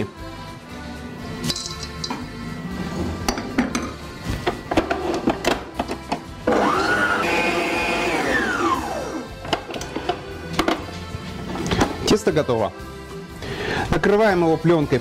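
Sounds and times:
stand mixer motor whining: 6.4 - 9.3.

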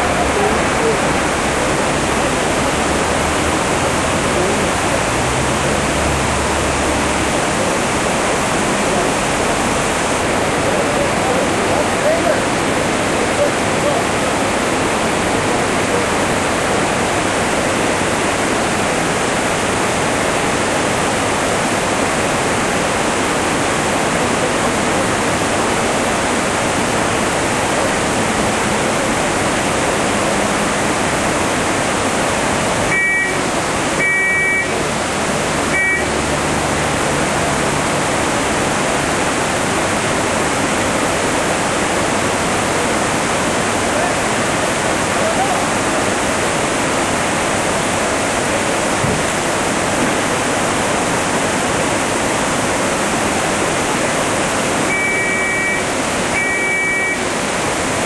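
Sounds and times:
river rushing: 0.0 - 58.0
short high beeps: 32.9 - 33.4, 34.0 - 34.8, 35.7 - 36.2, 54.9 - 57.3.

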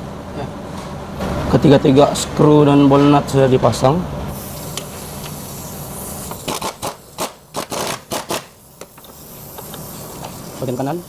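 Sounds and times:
steady hiss: 4.3 - 11.0.

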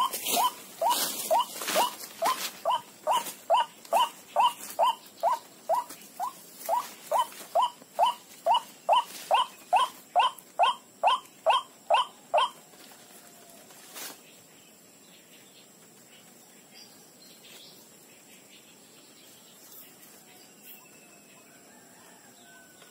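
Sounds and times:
waterhen calling: 0.0 - 12.6.

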